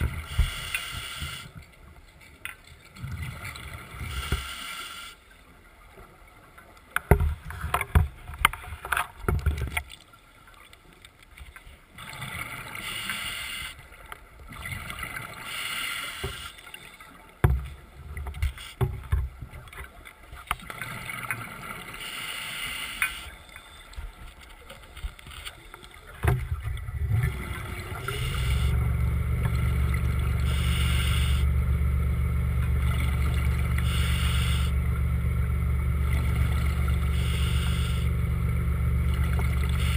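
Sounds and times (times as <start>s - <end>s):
underwater rushing swells: 26.4s - 39.9s
electric motor humming: 27.7s - 39.9s.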